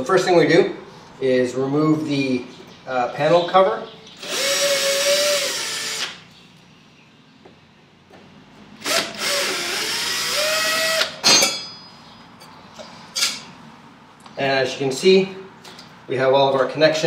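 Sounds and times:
cordless drill motor whining: 0:04.2 - 0:06.2, 0:08.8 - 0:11.2.

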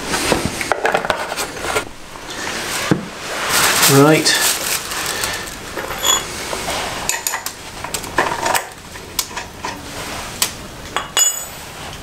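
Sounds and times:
metal-on-metal clinks: 0:11.0 - 0:11.7.

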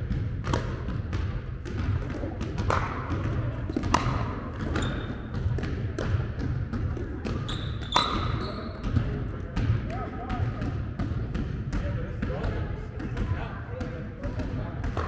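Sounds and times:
paddles striking plastic ball: 0:00.4 - 0:08.2.

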